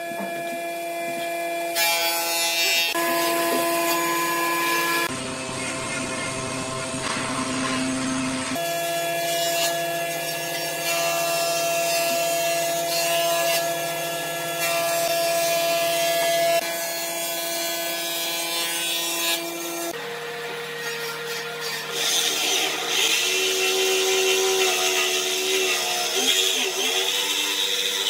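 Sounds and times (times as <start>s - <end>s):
electric motor hum: 0.0s - 10.3s.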